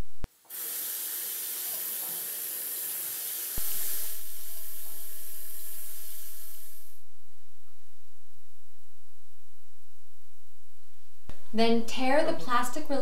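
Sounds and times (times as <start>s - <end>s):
faucet water running into sink: 0.5s - 6.9s
low steady hum: 3.6s - 13.0s.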